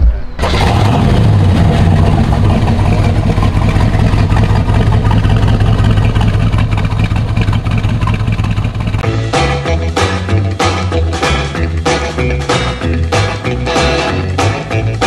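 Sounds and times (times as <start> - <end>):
car engine with deep exhaust: 0.4 - 9.0.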